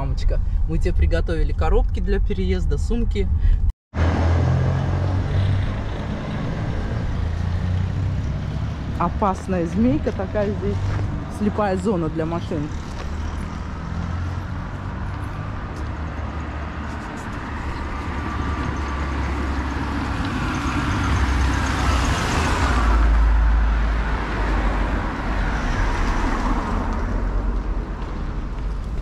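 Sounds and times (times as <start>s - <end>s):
car driving past: 4.0s - 9.0s.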